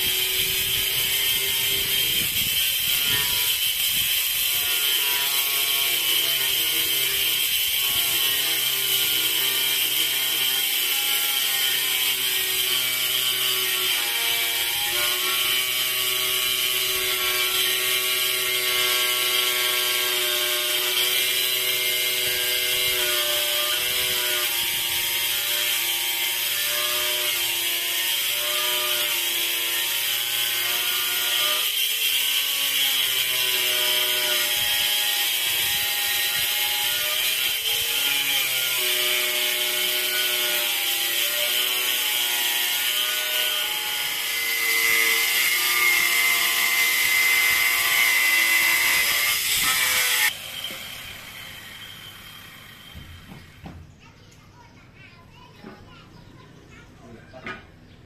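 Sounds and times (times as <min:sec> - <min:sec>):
machine hissing and whining: 0:50.2 - 0:53.6.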